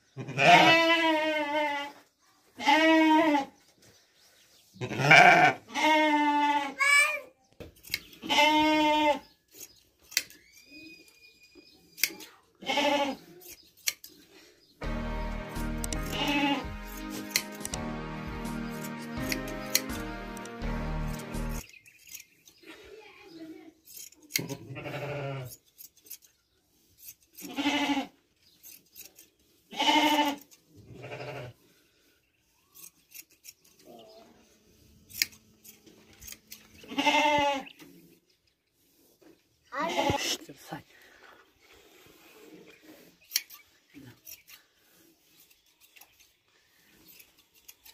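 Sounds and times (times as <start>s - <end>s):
sheep bleating: 0.2s - 1.9s, 2.6s - 3.5s, 4.8s - 6.8s, 8.2s - 9.2s, 15.9s - 17.0s, 24.7s - 25.5s, 29.7s - 31.6s, 36.9s - 37.6s
hand shears clicking: 9.6s - 10.4s, 13.4s - 14.2s, 15.4s - 22.4s, 23.8s - 24.5s, 28.6s - 29.3s, 32.8s - 33.9s, 35.1s - 36.7s, 43.2s - 43.6s.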